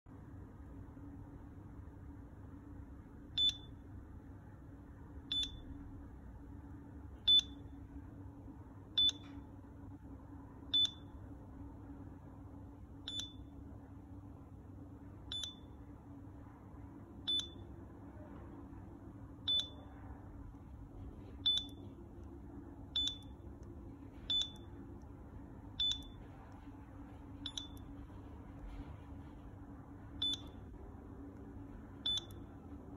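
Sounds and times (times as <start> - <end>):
barcode scanner beeps: 3.4 - 3.8, 5.3 - 5.7, 7.3 - 7.7, 9.0 - 9.4, 10.7 - 11.2, 13.1 - 13.5, 15.3 - 15.8, 17.3 - 17.7, 19.4 - 19.9, 21.4 - 22.0, 22.9 - 23.6, 24.2 - 24.8, 25.8 - 26.3, 27.4 - 28.0, 30.2 - 30.7, 32.0 - 32.6.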